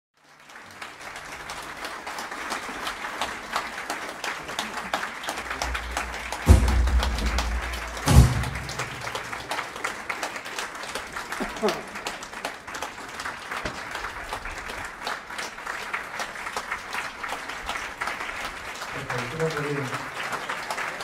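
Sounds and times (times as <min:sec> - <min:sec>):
audience applauding: 0:00.2 - 0:21.0
loud low thumps: 0:05.6 - 0:09.4.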